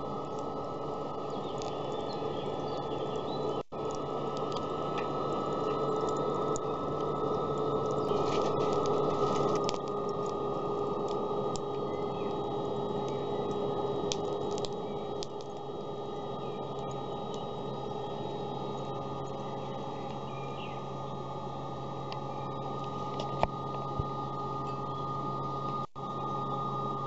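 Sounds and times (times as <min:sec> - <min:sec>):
fan whirring: 0:00.0 - 0:27.0
sharp clicks: 0:13.0 - 0:15.7.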